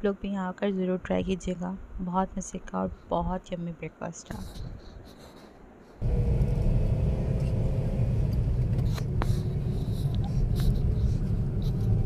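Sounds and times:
car cabin road rumble: 6.0s - 12.0s.

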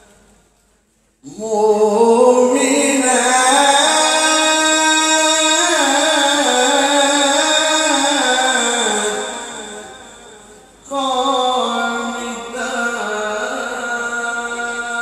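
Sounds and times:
man reciting melodically into microphone: 1.2s - 15.0s.

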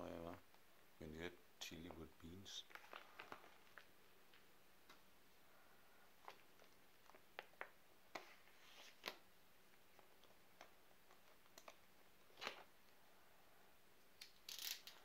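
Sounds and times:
plastic and foil packaging crinkling: 2.6s - 4.4s.

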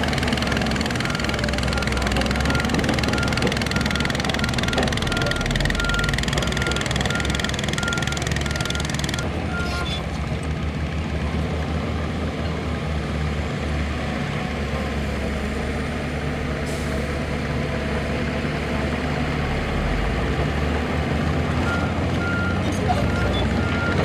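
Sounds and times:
diesel construction machinery running: 0.0s - 24.0s
reversing beeper: 1.0s - 9.9s, 21.6s - 24.0s.

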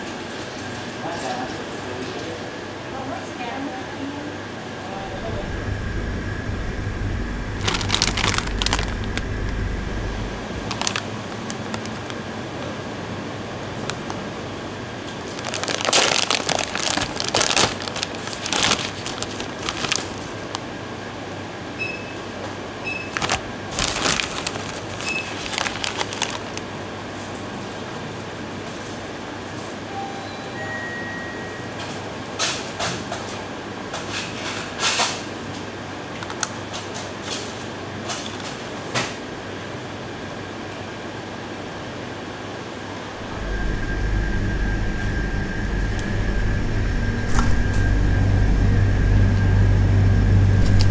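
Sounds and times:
steady hum: 4.5s - 21.8s, 22.6s - 27.2s, 42.8s - 50.9s
chip crunching: 7.6s - 12.2s, 15.1s - 20.6s, 23.1s - 26.7s
plastic snack bag crinkling: 7.6s - 12.3s, 15.0s - 20.6s, 23.0s - 26.8s.

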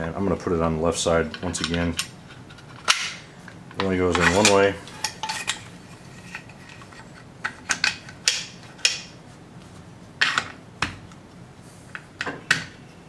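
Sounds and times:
metal parts sliding: 4.0s - 8.2s.

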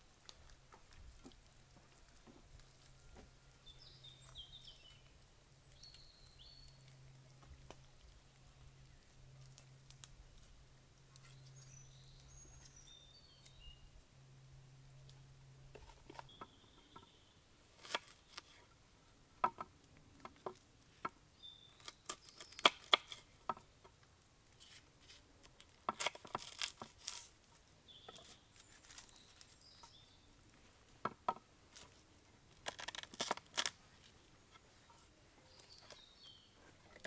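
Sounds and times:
faint bird chirps: 16.2s - 17.4s.

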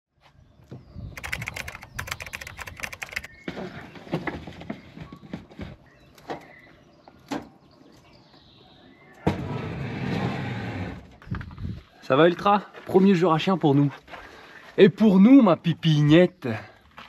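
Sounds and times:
rapid clicking: 1.2s - 3.3s.

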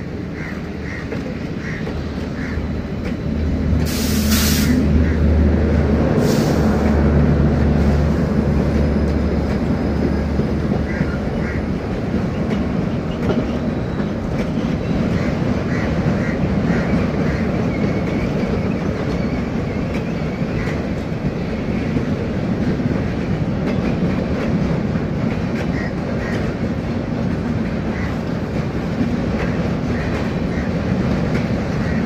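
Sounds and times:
train wheels rumbling on rail: 0.0s - 32.0s
short hissing bursts: 3.9s - 4.8s.

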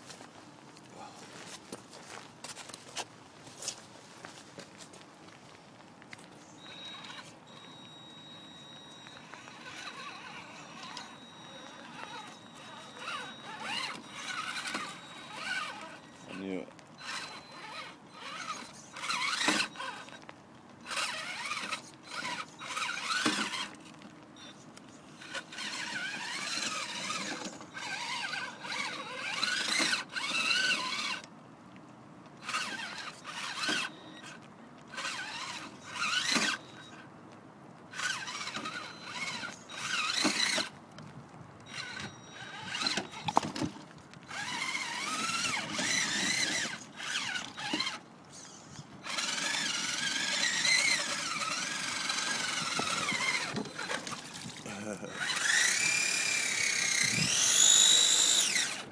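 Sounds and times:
electric motor whining: 6.6s - 20.2s, 20.8s - 23.8s, 25.2s - 31.3s, 32.4s - 37.0s, 37.9s - 40.7s, 41.7s - 43.5s, 44.3s - 58.9s.

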